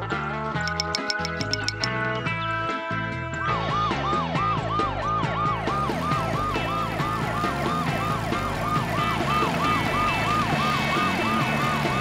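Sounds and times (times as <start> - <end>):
ambulance siren yelping: 3.7 - 12.0.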